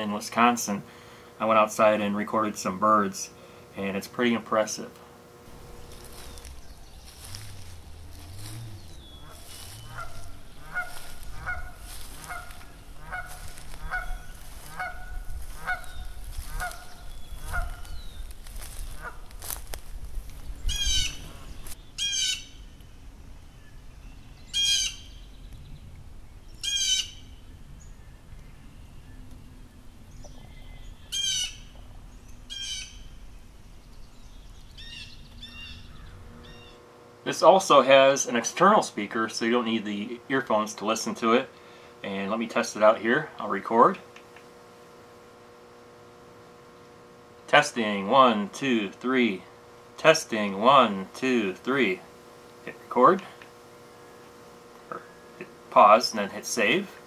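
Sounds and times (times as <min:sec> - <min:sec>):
evenly spaced bird calls: 0:05.2 - 0:19.6, 0:20.2 - 0:38.5
sharp high-pitched bird calls: 0:05.8 - 0:19.2, 0:20.6 - 0:22.7, 0:24.5 - 0:25.3, 0:26.6 - 0:27.4, 0:30.1 - 0:33.2, 0:34.3 - 0:36.8.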